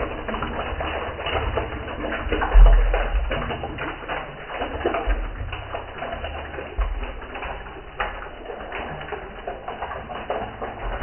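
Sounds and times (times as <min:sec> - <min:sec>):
water trickling into drain box: 0:00.0 - 0:11.0.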